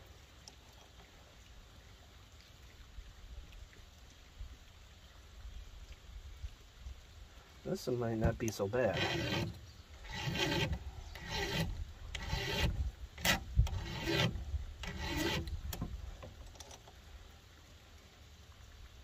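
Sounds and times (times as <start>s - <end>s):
file rasping on chainsaw chain: 8.5s - 15.9s.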